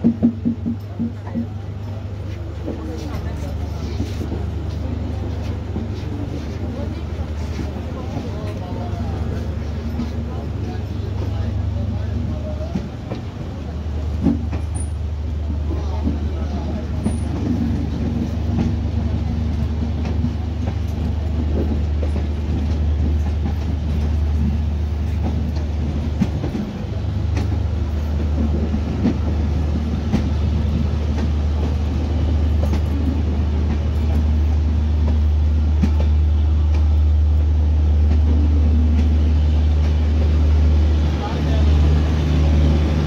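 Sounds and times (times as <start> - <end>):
train wheels clicking over rail joints: 0.0 - 1.6, 12.4 - 43.0.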